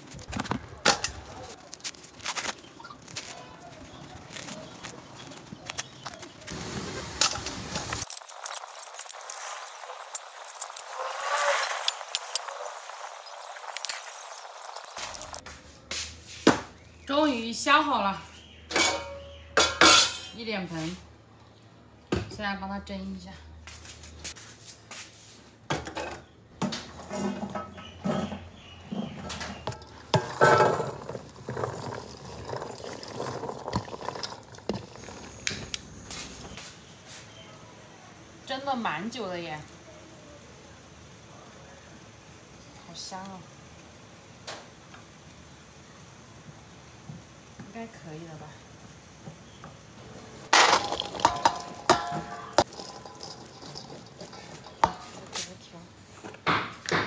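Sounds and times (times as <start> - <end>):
kernels clicking on metal basin: 7.2 - 15.4, 50.5 - 55.4
hands scraping a basin: 50.8 - 55.6.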